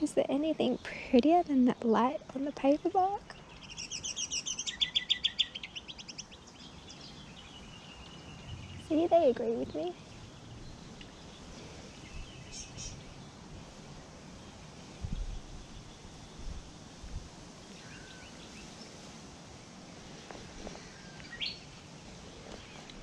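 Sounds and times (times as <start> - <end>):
faint steady hiss: 0.0 - 23.0
short bird chirps: 12.0 - 13.1.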